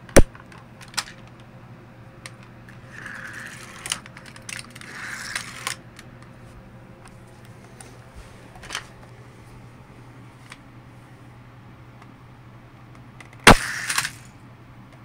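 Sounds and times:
rubbing and handling noise: 2.6 - 11.2.

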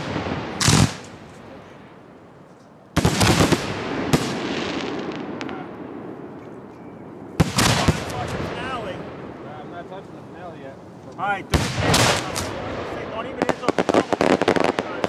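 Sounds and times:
firework shells bursting: 11.1 - 15.0.

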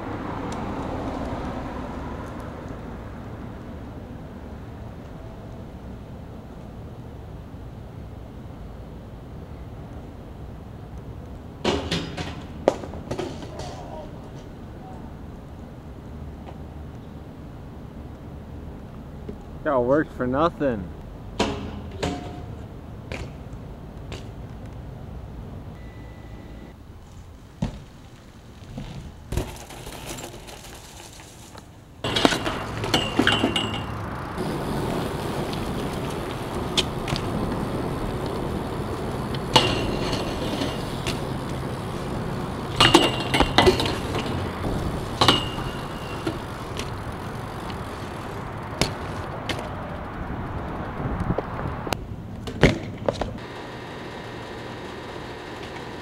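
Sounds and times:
bike wheels rolling on concrete: 0.0 - 25.9, 26.6 - 56.0
sharp metal clanks: 21.4 - 22.6, 32.0 - 34.4, 42.7 - 46.9.

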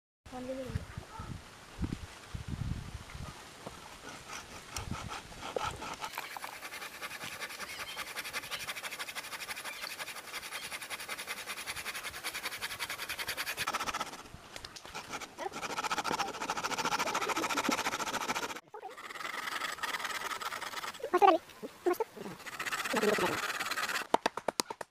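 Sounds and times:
hand saw rasping into wood: 3.9 - 14.2, 14.9 - 21.0, 22.4 - 24.1.

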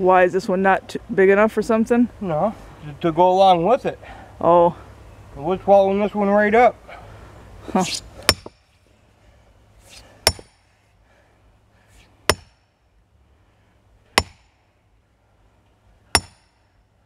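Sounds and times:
sledgehammer striking steel wedge: 7.9 - 8.6, 10.2 - 10.7, 12.3 - 12.7, 14.1 - 14.6, 16.1 - 16.6.

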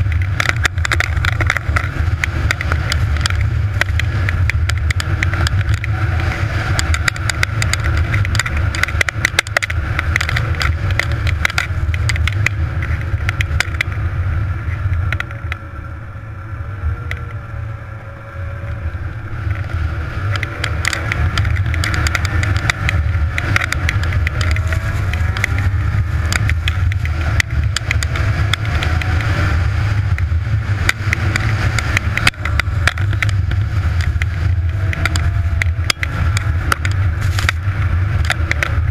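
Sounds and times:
knocks and rattles: 0.0 - 14.0
snowmobile engine running: 0.0 - 38.9.

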